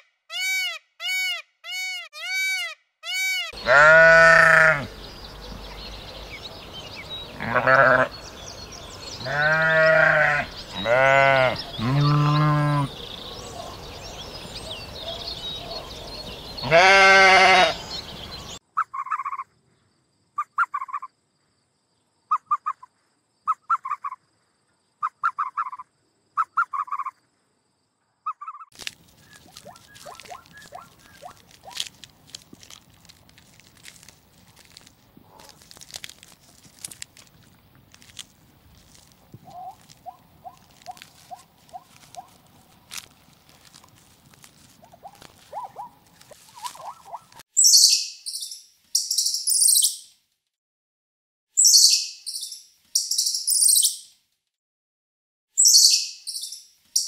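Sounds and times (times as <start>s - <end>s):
sheep bleating: 3.5s - 4.9s, 7.4s - 8.1s, 9.2s - 12.9s, 16.6s - 17.8s
dry crackling and crunching: 28.7s - 47.4s
short clipped calls: 44.8s - 50.0s.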